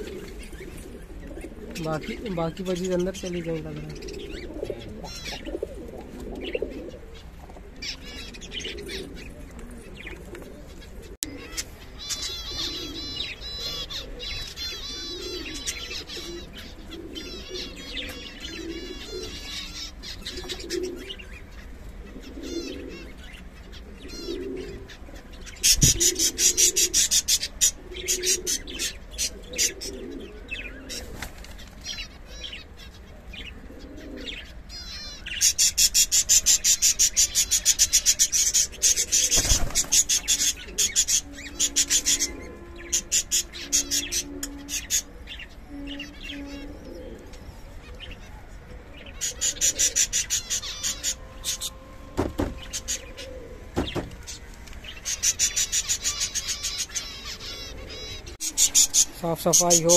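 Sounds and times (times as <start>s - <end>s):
rapid high-pitched bird chatter: 0.0s - 5.8s, 34.1s - 46.9s, 49.1s - 51.8s, 52.4s - 59.9s
cage birds chirping: 0.0s - 59.9s
pigeons cooing: 0.0s - 59.9s.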